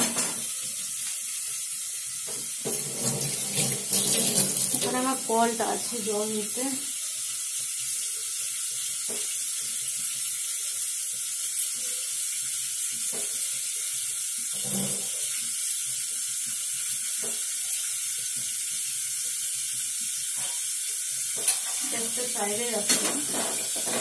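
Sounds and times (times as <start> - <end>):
slices sizzling in oil: 0.0 - 24.0
tap water running into a sink: 0.0 - 24.0.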